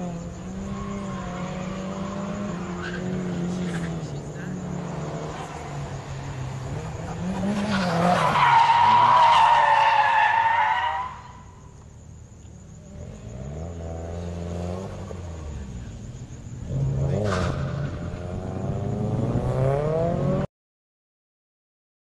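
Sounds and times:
car engines revving: 0.0 - 20.5
tyres squealing: 5.6 - 11.6.

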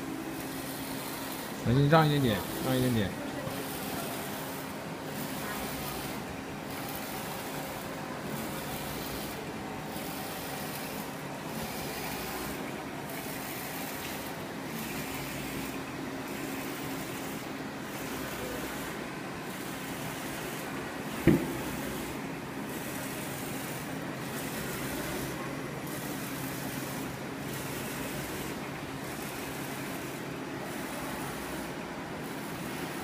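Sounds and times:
print carriage hiss: 0.0 - 33.0
printer machine hum: 0.0 - 33.0.

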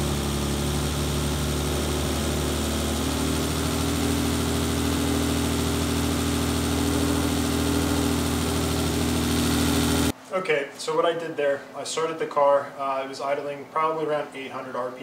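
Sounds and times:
car engine idling: 0.0 - 10.1.

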